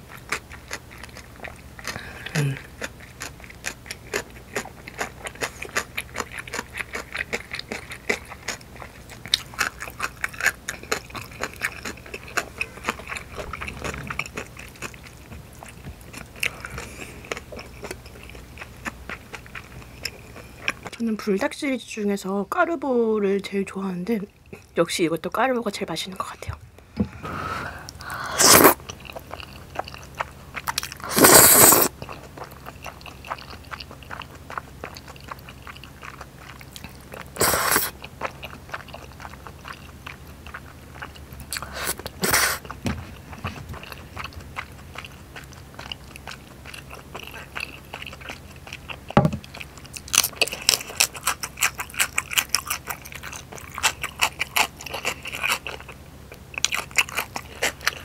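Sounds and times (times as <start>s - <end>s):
wet chewing clicks: 0.0s - 21.0s, 27.8s - 58.0s
slurping noodles: 11.4s - 15.2s, 27.2s - 28.8s, 31.0s - 32.0s, 37.3s - 38.0s, 41.6s - 42.7s.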